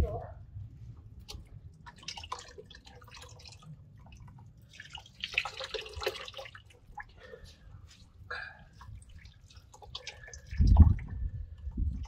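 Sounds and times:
liquid dripping and trickling: 0:01.1 - 0:12.0
wet splashing: 0:01.3 - 0:07.4, 0:08.7 - 0:11.2.

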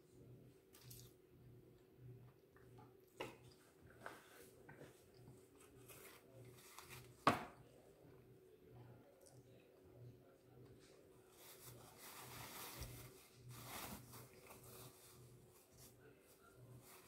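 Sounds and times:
paper napkin rustling: 0:11.3 - 0:17.0.

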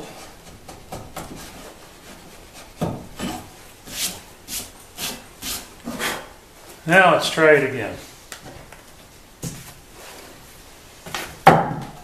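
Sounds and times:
chisel scraping strokes: 0:00.0 - 0:06.3.

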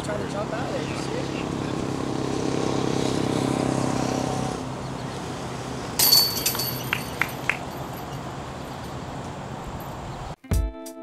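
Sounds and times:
passing vehicle engine hum: 0:00.0 - 0:10.4
light metallic clinks: 0:06.0 - 0:10.0
disc striking basket chains: 0:06.0 - 0:10.1.

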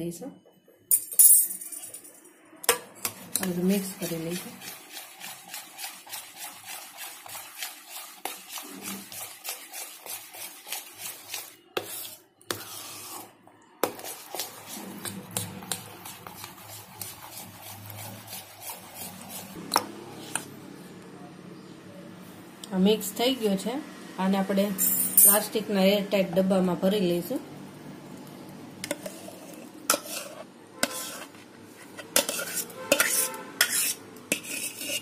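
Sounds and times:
metal spoon scraping bowl: 0:03.0 - 0:20.6, 0:28.8 - 0:35.0.

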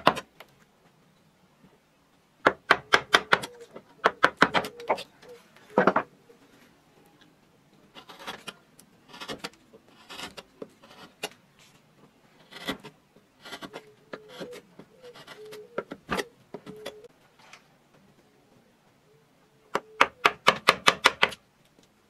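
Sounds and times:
gouge scraping wood: 0:07.9 - 0:11.4, 0:12.4 - 0:16.9.

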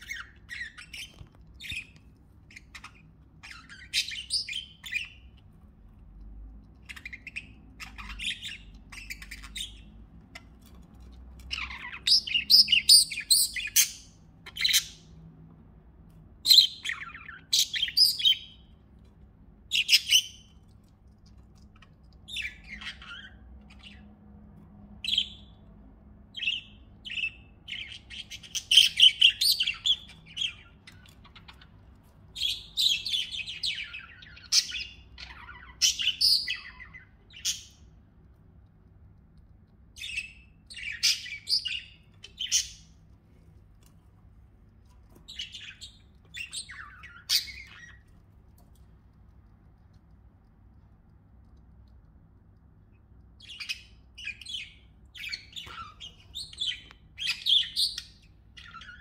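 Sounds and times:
budgerigars chirping: 0:00.0 - 0:05.8, 0:06.8 - 0:15.2, 0:16.4 - 0:18.9, 0:19.6 - 0:20.7, 0:21.6 - 0:24.2, 0:25.0 - 0:25.7, 0:26.3 - 0:38.0, 0:39.8 - 0:43.0, 0:44.7 - 0:48.3, 0:53.0 - 0:59.0.

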